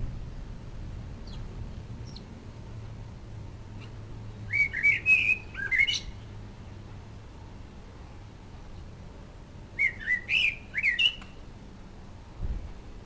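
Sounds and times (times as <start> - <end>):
low steady hum: 0.0 - 13.0
bird chirping and warbling: 1.2 - 1.4, 4.5 - 6.3, 9.8 - 11.4.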